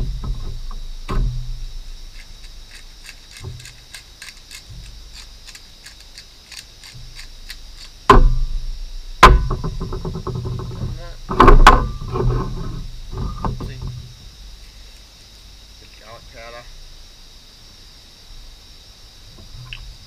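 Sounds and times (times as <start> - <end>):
spice grinder clicking: 2.2 - 8.0
loud knock: 8.1 - 8.5, 9.2 - 10.6, 11.3 - 12.3.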